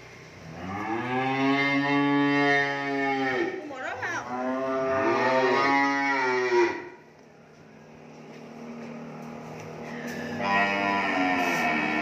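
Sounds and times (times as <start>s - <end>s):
cow mooing: 0.5s - 3.6s, 4.2s - 7.0s, 10.1s - 12.0s.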